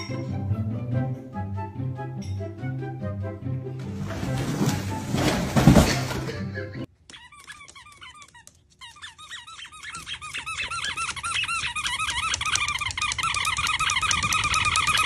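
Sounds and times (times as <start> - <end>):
plastic toilet seat squeaking: 3.8 - 6.4.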